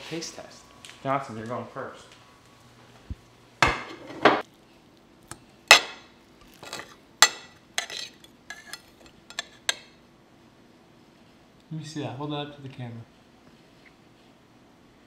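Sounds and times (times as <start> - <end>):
plate set down on wooden table: 3.6 - 4.4
fork clinking against plate: 6.6 - 10.0.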